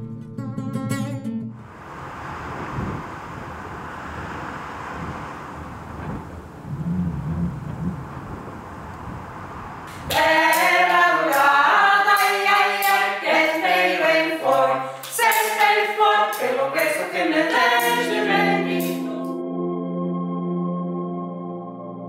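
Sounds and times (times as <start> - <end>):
a cappella choir singing: 9.9 - 19.4.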